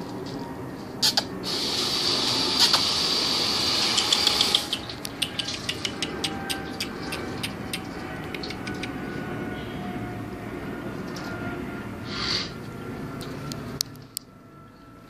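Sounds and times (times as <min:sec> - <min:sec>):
steady hiss: 0:01.4 - 0:04.5.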